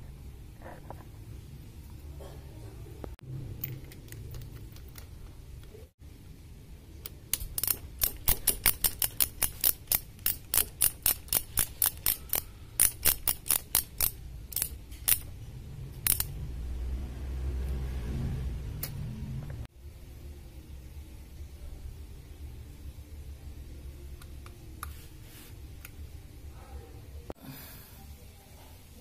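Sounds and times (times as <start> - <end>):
ratchet wrench clicking: 7.3 - 15.3, 16.0 - 16.4.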